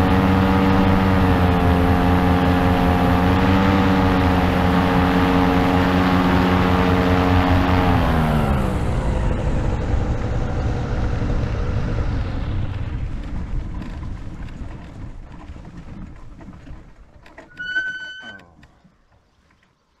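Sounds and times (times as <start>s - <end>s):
low engine and wheels rumble: 0.0s - 20.0s.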